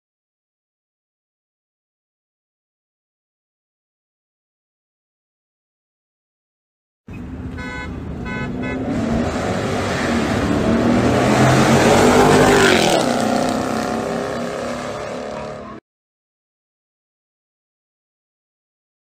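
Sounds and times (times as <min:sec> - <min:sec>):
cars accelerating past: 0:07.3 - 0:15.8
horn toots: 0:07.5 - 0:09.2.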